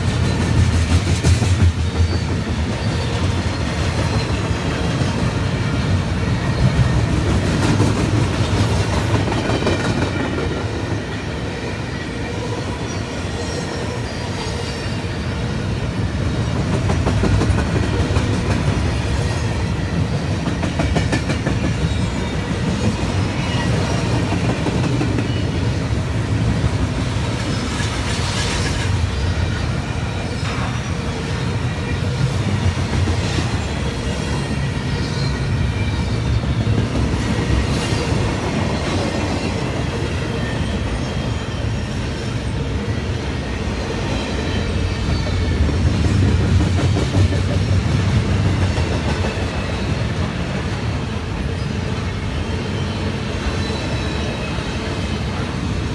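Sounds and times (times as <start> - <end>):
train wheels rumbling and clattering: 0.0 - 55.9
high wheel squeal: 12.7 - 15.4, 37.3 - 43.0, 51.5 - 55.1.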